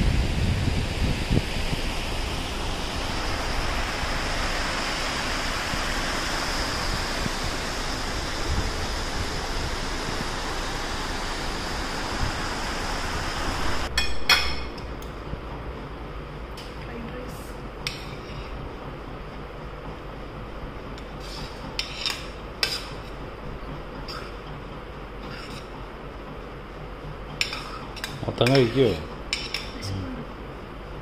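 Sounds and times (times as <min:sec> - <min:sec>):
metal spoon clinking on plates: 0:27.4 - 0:29.8.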